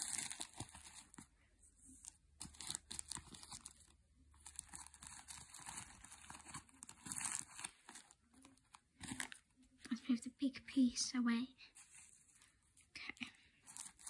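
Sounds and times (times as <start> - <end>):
paper crinkling and rustling: 0.0 - 1.3, 1.9 - 9.6, 13.6 - 14.0.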